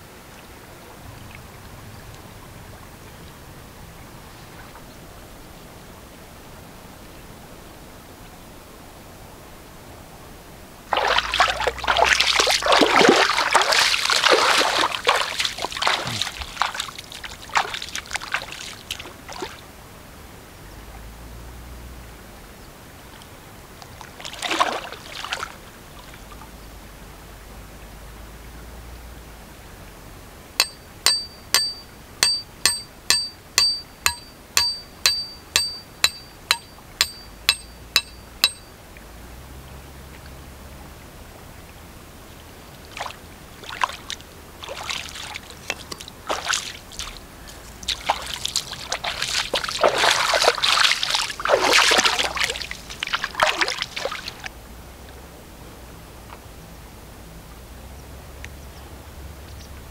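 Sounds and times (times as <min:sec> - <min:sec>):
water splashing and pouring: 0:10.9 - 0:19.6, 0:24.0 - 0:26.2, 0:42.9 - 0:47.2, 0:47.8 - 0:54.5
small metal bell ringing: 0:30.6 - 0:38.7.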